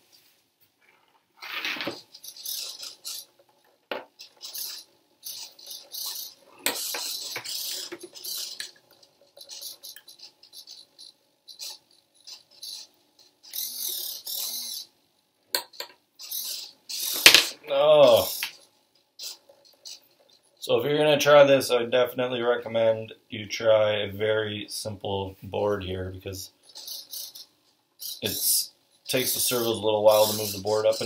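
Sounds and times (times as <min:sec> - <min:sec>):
scratchy rustling of handled objects: 0:00.0 - 0:14.8, 0:25.5 - 0:31.0.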